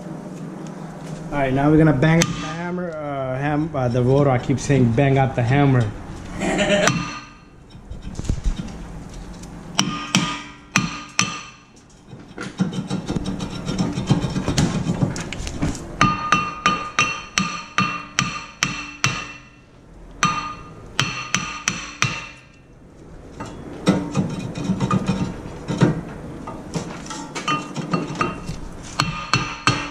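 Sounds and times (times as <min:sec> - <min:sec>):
hammer striking metal rotor: 0:02.1 - 0:02.8, 0:06.8 - 0:08.1, 0:09.8 - 0:11.8, 0:16.0 - 0:22.6, 0:27.1 - 0:29.9.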